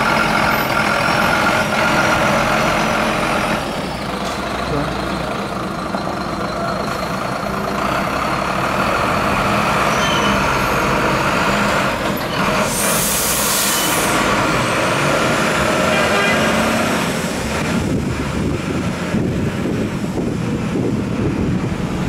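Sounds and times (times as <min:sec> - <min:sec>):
lorry diesel engine running: 0:00.0 - 0:22.0
air brakes hissing: 0:12.4 - 0:14.4
wind buffeting microphone: 0:17.4 - 0:22.0.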